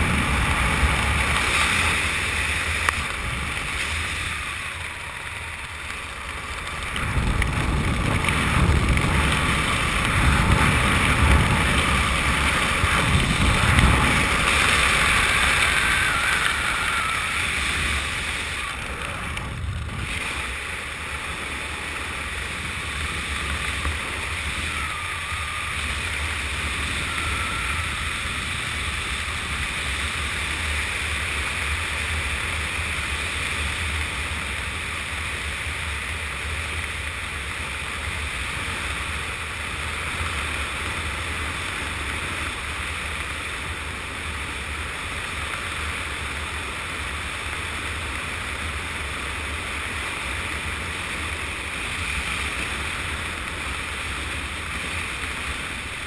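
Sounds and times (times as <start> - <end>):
wind buffeting microphone: 0.0 - 33.5.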